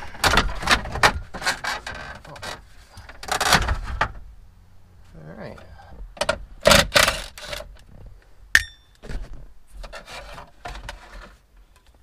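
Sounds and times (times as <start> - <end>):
scraping of plastic dash trim: 0.0 - 4.3, 6.2 - 7.9, 9.0 - 11.5
sharp metallic clink: 8.6 - 9.0.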